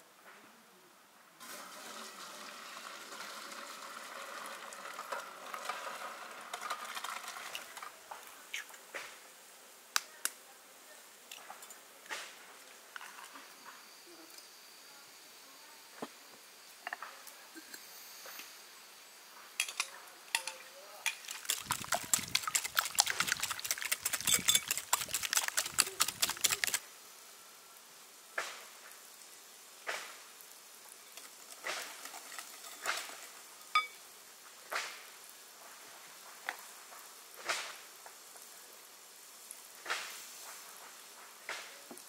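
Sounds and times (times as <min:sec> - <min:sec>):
utensils clinking on bowl: 0:19.6 - 0:26.8
whisk clattering against glass bowl: 0:21.1 - 0:26.8.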